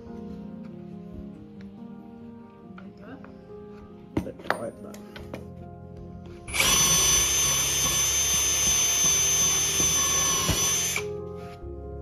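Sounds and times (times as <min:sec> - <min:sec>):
cordless drill boring wood: 0:06.5 - 0:11.2.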